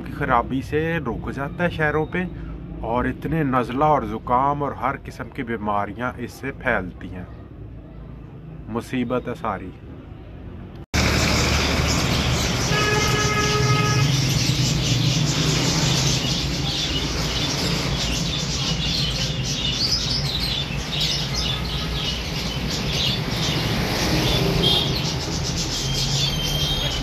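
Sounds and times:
birds chirping: 0.0s - 27.0s
low traffic rumble: 0.0s - 27.0s
horn: 12.7s - 14.2s.

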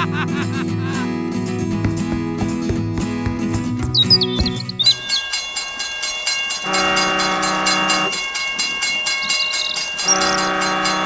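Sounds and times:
toy train horn blasts: 6.6s - 8.2s, 10.0s - 11.0s.

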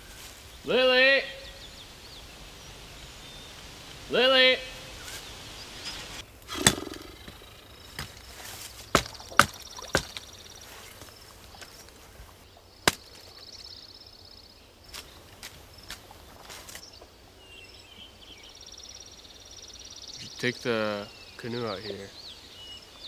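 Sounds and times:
hatchet chopping wood: 6.5s - 7.0s, 8.9s - 10.2s, 12.9s - 13.2s.

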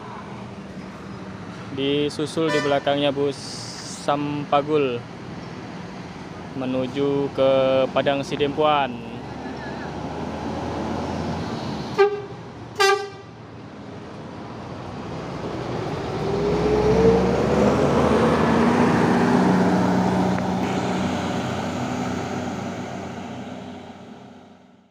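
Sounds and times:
bus diesel engine passing: 0.0s - 24.9s
bus horn toots: 2.5s - 3.0s, 11.9s - 13.4s.

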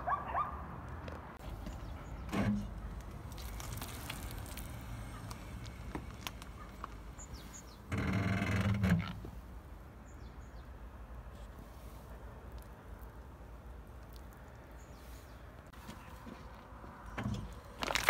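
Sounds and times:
car engine humming: 1.5s - 8.3s
tyre crushing pastry crackles: 3.0s - 7.0s, 17.8s - 18.0s.

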